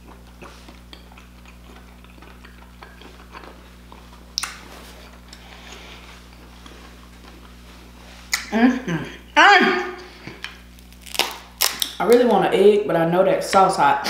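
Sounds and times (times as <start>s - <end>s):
wet chewing and mouth smacks: 0.0s - 7.6s.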